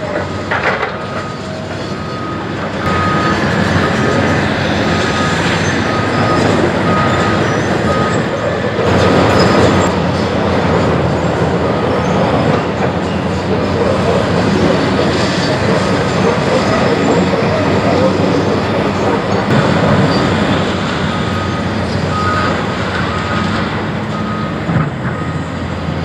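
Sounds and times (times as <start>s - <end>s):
concrete rumble and clatter: 0.0s - 26.0s
excavator diesel engines and hydraulics: 0.0s - 26.0s
high beeping: 2.0s - 3.5s.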